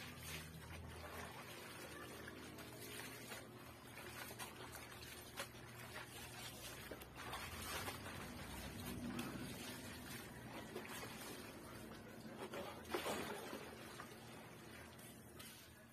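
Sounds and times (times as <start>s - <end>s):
water trickling into basin: 0.0s - 12.3s
water splashing in basin: 0.0s - 15.7s.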